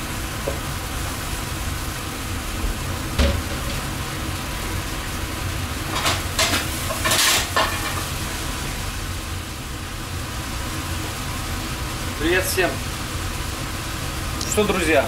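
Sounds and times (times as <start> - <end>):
low machinery hum: 0.0 - 15.0
meat sizzling in a pan: 0.0 - 15.0
pan clattering: 3.2 - 4.0, 5.9 - 8.1.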